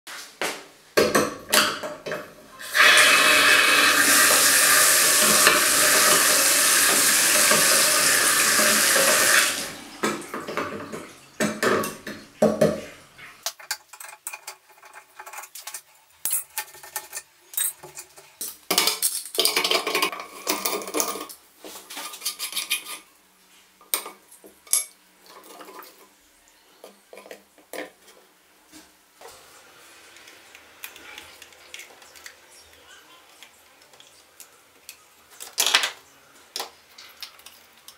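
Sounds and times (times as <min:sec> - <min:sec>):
tap water running into basin: 0:01.1 - 0:12.9.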